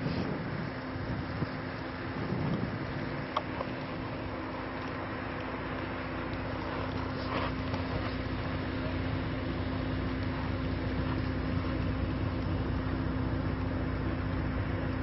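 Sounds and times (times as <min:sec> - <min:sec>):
constant low hum: 0:00.0 - 0:15.0.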